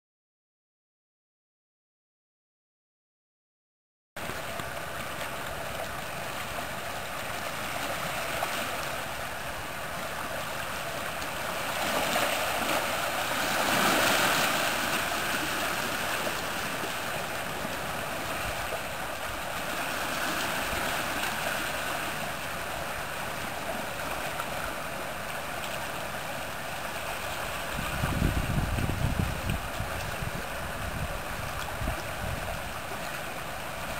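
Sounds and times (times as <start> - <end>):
sea water lapping over rocks: 4.2 - 33.9.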